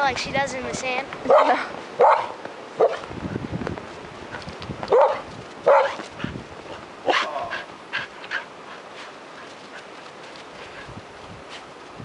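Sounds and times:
dog barking: 1.3s - 3.0s, 4.9s - 6.0s.

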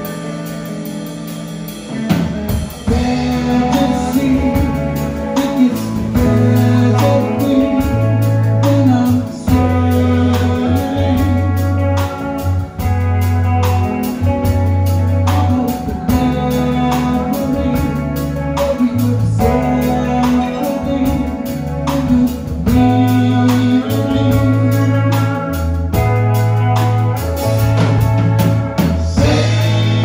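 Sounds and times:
bass: 0.0s - 30.0s
drum kit: 0.0s - 30.0s
keyboards: 0.0s - 30.0s
pedal steel guitar: 0.0s - 30.0s
person singing: 2.8s - 12.9s, 13.5s - 26.2s, 28.8s - 30.0s.

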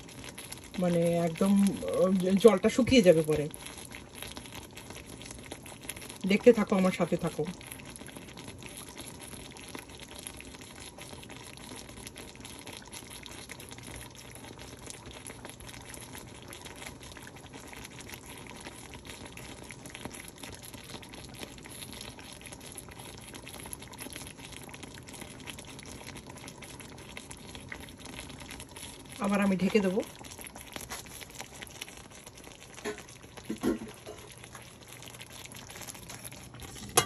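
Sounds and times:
chicken juices sizzling in a wok: 0.0s - 37.0s.

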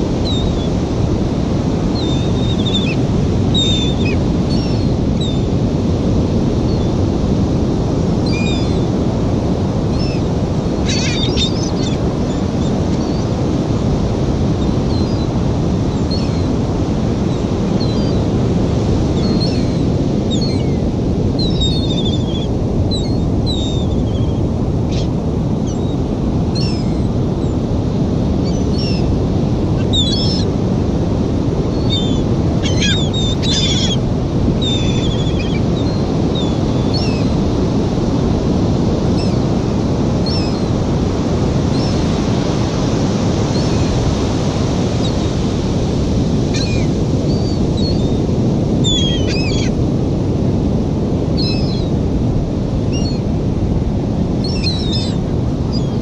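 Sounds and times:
surf rushing: 0.0s - 56.0s
wind: 0.0s - 56.0s
gulls calling: 0.2s - 5.6s, 9.8s - 13.8s, 19.0s - 27.6s, 28.4s - 30.6s, 31.4s - 38.2s, 40.2s - 49.8s, 54.4s - 56.0s.

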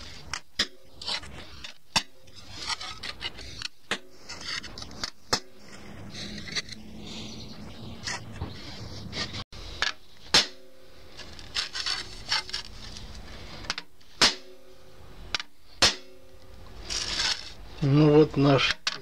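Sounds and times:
hammer striking saw blade: 10.3s - 10.8s.

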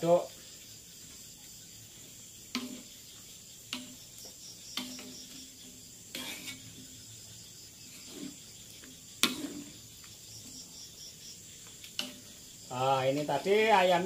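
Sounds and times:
crickets chirping: 0.0s - 14.0s
metal ladle clanking on wok: 2.6s - 2.9s.

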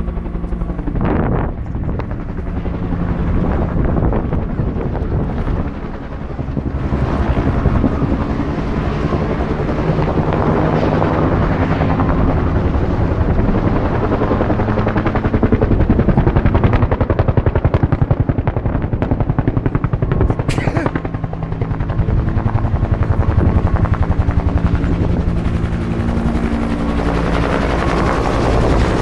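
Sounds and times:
helicopter rotor chopping: 0.0s - 29.0s.

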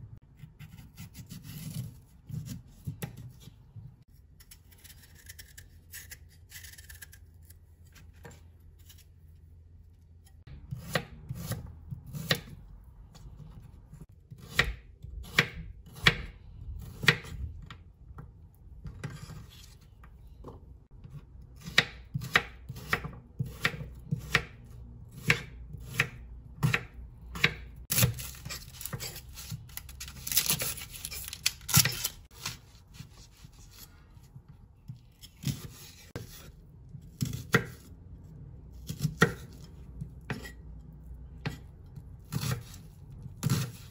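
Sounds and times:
knife chopping on cutting board: 10.6s - 12.6s, 14.3s - 17.4s, 21.0s - 29.6s, 37.1s - 37.9s, 38.8s - 40.6s, 41.4s - 42.8s, 43.4s - 43.9s.

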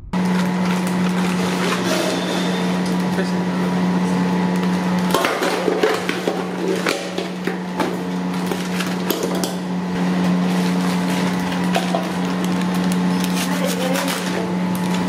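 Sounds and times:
steady hum: 0.0s - 15.0s
plastic bags crinkling: 10.4s - 15.0s.

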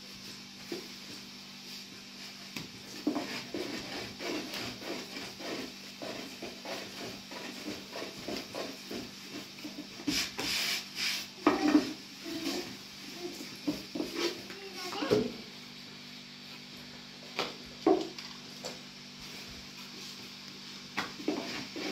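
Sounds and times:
rolling pin rolling dough: 0.6s - 15.3s, 21.0s - 21.9s.

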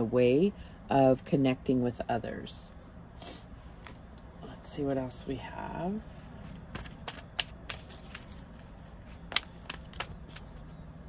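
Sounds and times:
cards being shuffled: 6.0s - 10.8s.

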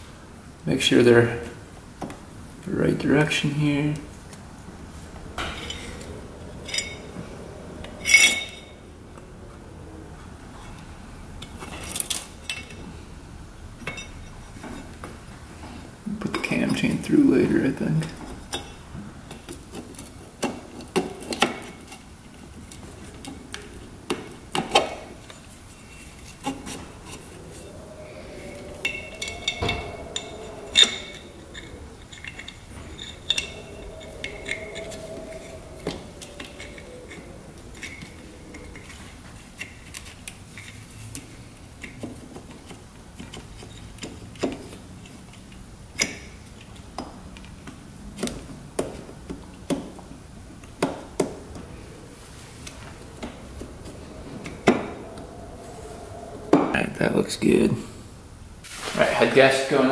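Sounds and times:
metal cylinder sliding: 4.8s - 12.8s, 20.8s - 44.8s.

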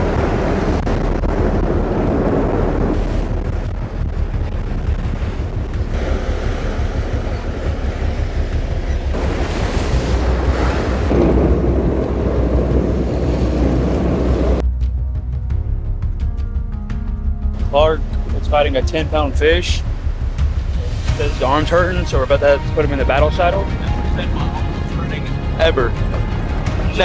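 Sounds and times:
water rushing along boat: 0.0s - 14.6s, 17.6s - 27.0s
wind buffeting microphone: 0.0s - 14.6s
low engine rumble: 0.0s - 27.0s.

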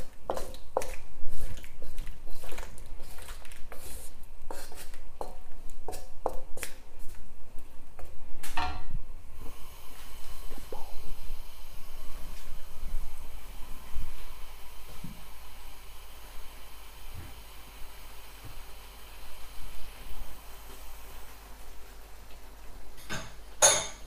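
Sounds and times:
spatula scraping a wok: 0.0s - 6.1s
sauce sizzling: 0.0s - 6.8s, 9.4s - 24.0s.

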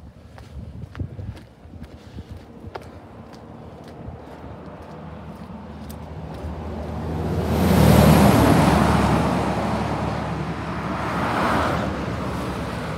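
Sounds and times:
passing traffic: 0.0s - 12.9s
car passing by: 3.0s - 12.9s.

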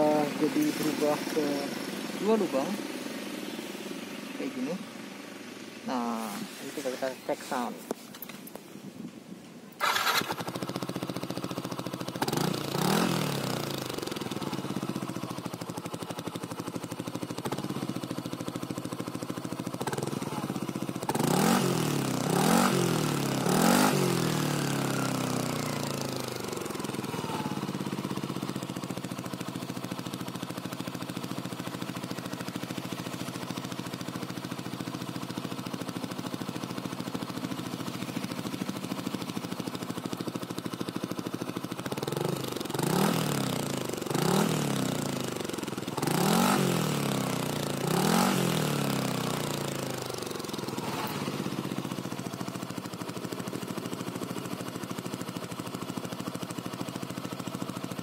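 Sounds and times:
scooter engine idling and revving: 0.0s - 58.0s.

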